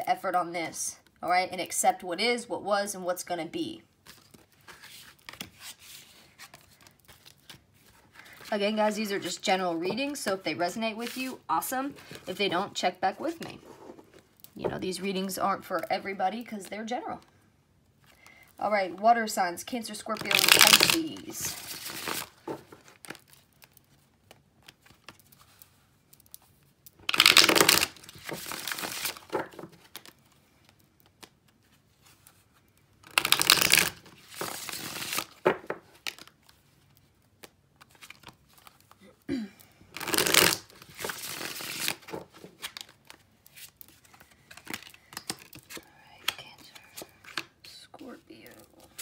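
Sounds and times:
cards riffle-shuffled: 4.0 - 9.0, 20.1 - 39.0, 40.0 - 47.6
cards rustling: 4.0 - 16.8, 19.8 - 39.0, 39.9 - 49.0.

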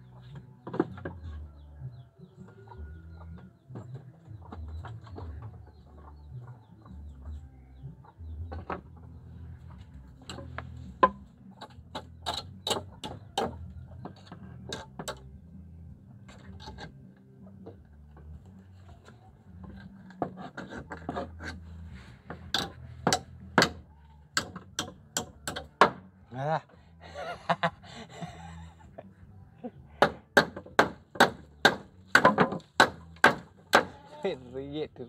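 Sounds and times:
chickens clucking: 0.0 - 15.3.

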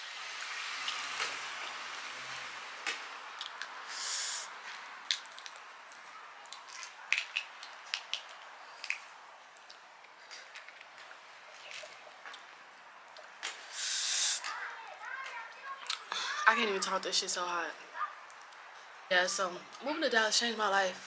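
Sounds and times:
crawfish shells cracking: 3.3 - 3.8, 4.7 - 12.5
short hiss: 3.8 - 4.6, 13.5 - 14.5.

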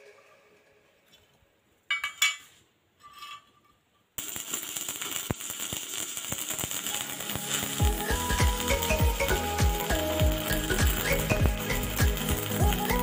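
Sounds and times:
arc welding crackling sizzle: 4.2 - 13.0.

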